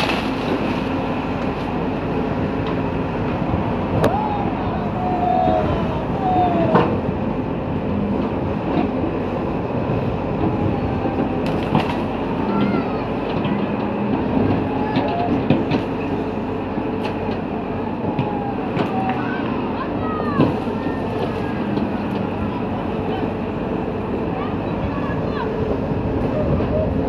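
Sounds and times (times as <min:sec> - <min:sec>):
branches cracking: 0:00.0 - 0:01.6
excavator diesel engine: 0:00.0 - 0:27.0.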